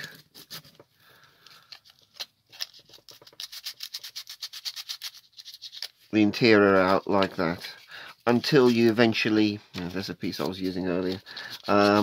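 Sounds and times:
sandpaper scratching plastic: 0:01.8 - 0:09.2, 0:09.8 - 0:12.0.

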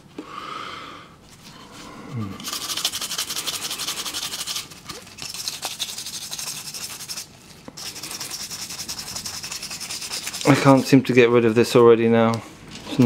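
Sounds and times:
toothbrush scrubbing plastic: 0:02.4 - 0:11.7.

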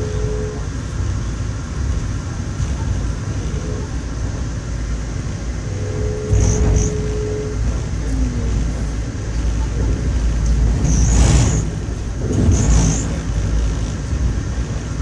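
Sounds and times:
train rumbling on track: 0:00.0 - 0:15.0
faint hum: 0:05.4 - 0:08.6.

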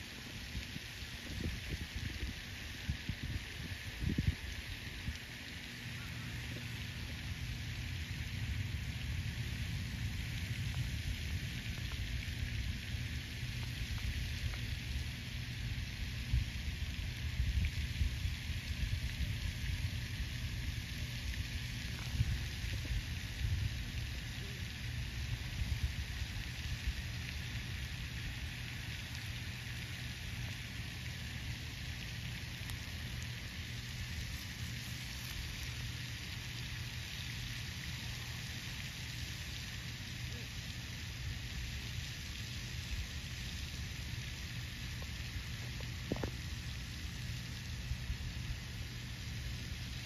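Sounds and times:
wind buffeting microphone: 0:00.6 - 0:05.2.

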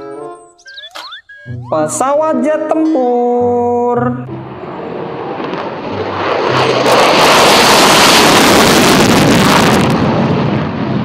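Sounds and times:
jet roar on takeoff: 0:04.3 - 0:11.0.

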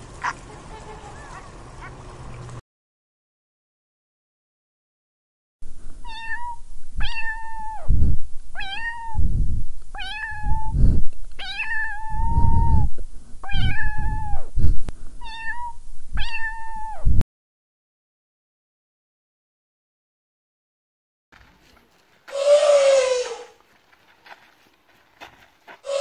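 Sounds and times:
low rumbling noise: 0:05.6 - 0:17.2
cat meowing: 0:06.0 - 0:07.9, 0:08.6 - 0:09.2, 0:10.0 - 0:10.7, 0:11.4 - 0:14.5, 0:15.2 - 0:17.1, 0:22.3 - 0:23.5.

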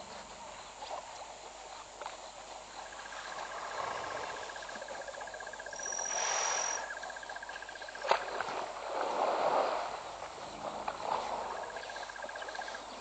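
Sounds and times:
insect trilling: 0:02.7 - 0:08.0
elephant splashing in water: 0:08.0 - 0:11.7.

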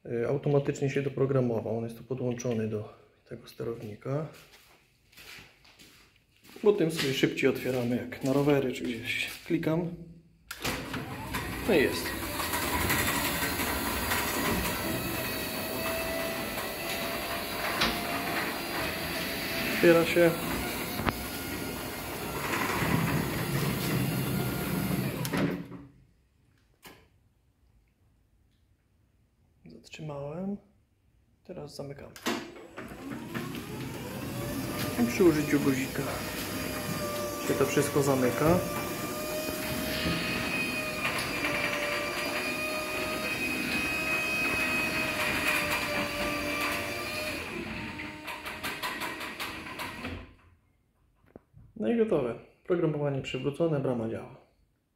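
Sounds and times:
garage door motor running: 0:10.5 - 0:25.8, 0:32.5 - 0:50.4
door panels rumbling on tracks: 0:17.1 - 0:25.7.

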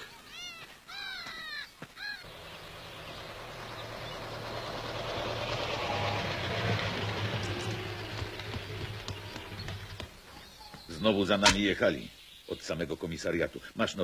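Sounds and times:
bird chirps: 0:00.0 - 0:13.4
motor vehicle approaching: 0:02.2 - 0:10.9.

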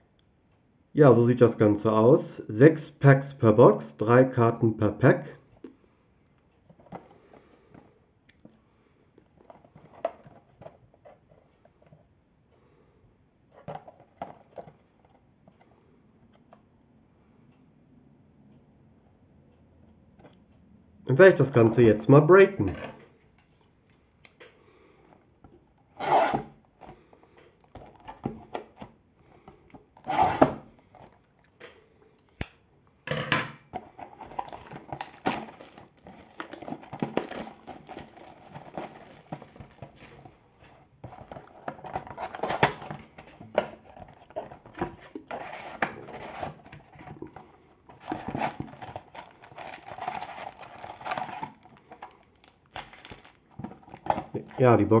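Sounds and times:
crinkling of plastic and foil packs: 0:33.8 - 0:55.0
plastic wrap ripping: 0:34.2 - 0:40.4, 0:48.0 - 0:54.6
scissors slitting plastic wrap: 0:34.4 - 0:40.2, 0:48.1 - 0:51.6.

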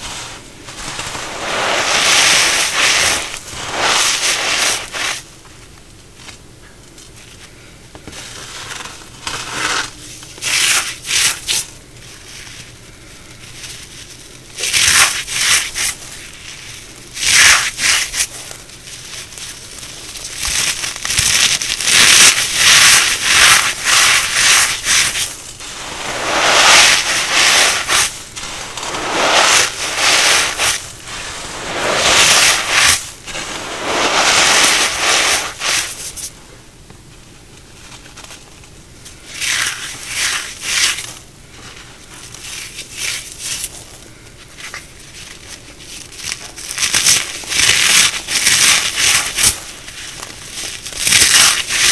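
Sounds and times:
crunchies crushed by hand: 0:08.1 - 0:25.6, 0:37.9 - 0:51.9.

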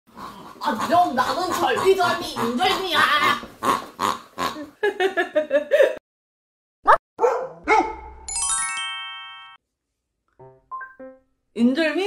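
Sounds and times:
dog barking: 0:06.9 - 0:08.2.

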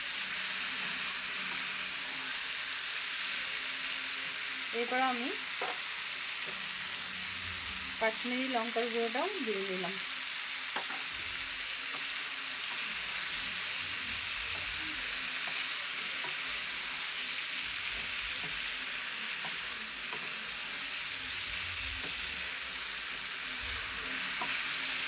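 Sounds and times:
vegetables sizzling in oil: 0:00.0 - 0:25.0.

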